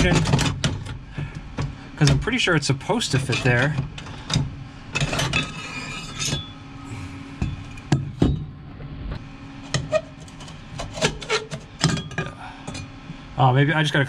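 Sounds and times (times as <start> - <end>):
metal scraping and rubbing: 3.0 - 4.3, 4.9 - 6.6, 9.6 - 12.9.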